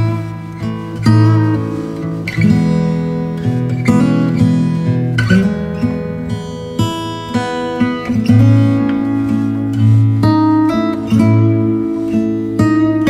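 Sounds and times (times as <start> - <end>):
plucked instrumental music: 0.0 - 13.0.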